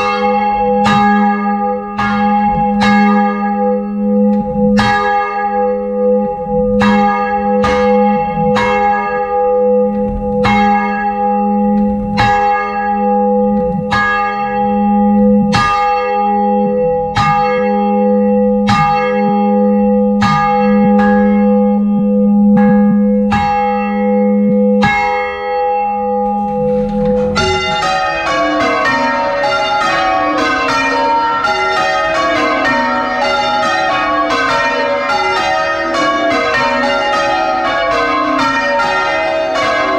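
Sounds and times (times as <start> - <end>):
low bell hum: 0.0 - 33.4
peal of church bells: 0.0 - 39.9
single church bell tolling: 0.0 - 39.9.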